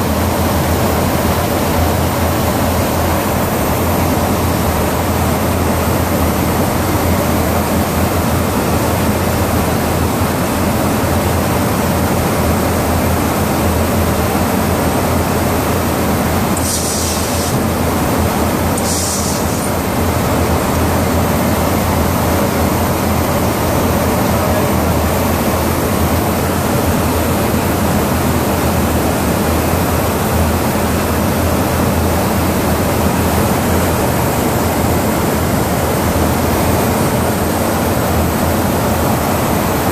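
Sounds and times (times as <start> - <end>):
in-flight airflow and engines: 0.0 - 39.9
short high hiss: 16.6 - 17.7, 18.8 - 19.8.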